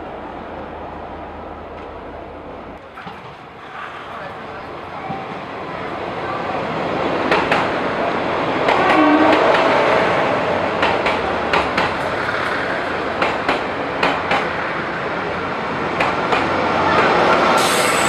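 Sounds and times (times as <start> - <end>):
train rumbling past: 0.0 - 18.0.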